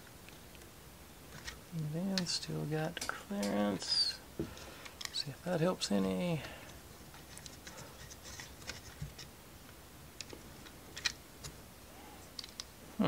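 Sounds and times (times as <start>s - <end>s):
wooden model parts clicking: 12.3s - 12.7s.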